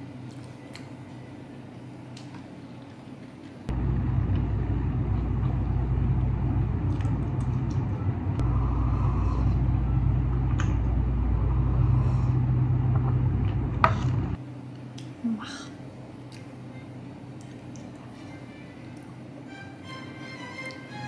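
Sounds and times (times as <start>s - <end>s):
electric appliance hum: 0.0s - 15.2s.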